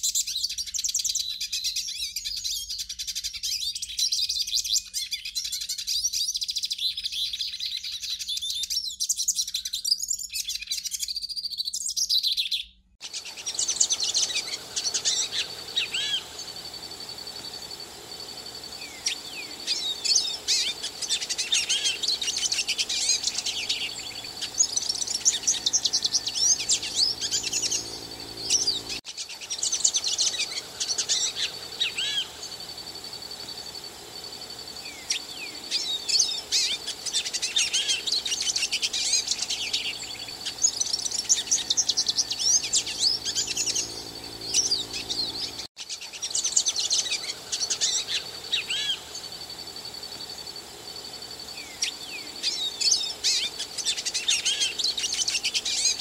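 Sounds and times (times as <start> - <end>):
goldfinch singing: 13.0 - 56.0.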